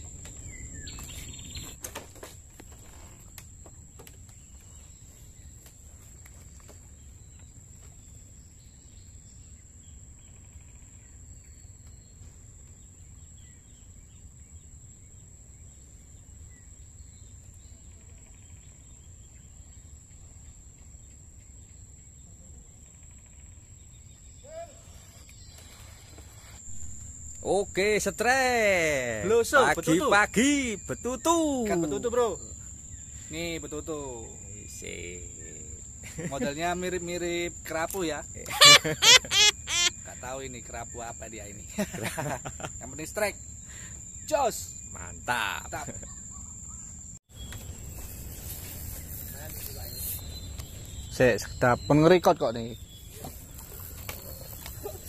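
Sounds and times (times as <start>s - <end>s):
high-pitched insect drone: 38.5s - 41.3s
faint bird chirps: 38.5s - 41.5s, 43.2s - 55.0s.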